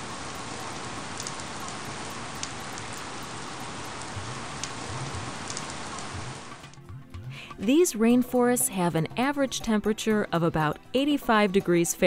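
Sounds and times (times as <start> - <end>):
steady rain: 0.0 - 6.8
rain drop ticks: 0.0 - 6.9.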